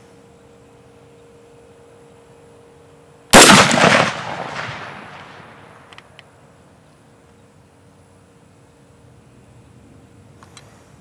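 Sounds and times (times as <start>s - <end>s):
rifle shot: 3.3s - 6.0s.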